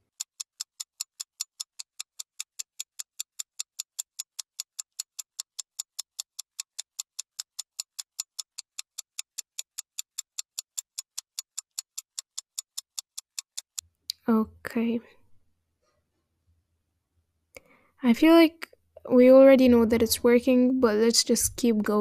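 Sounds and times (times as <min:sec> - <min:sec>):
clock-like ticking: 0:00.0 - 0:14.2.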